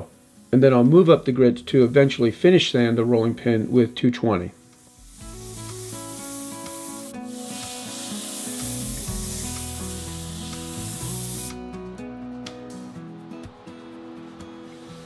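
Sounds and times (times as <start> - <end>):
sandpaper on spinning wood: 4.8 - 11.5.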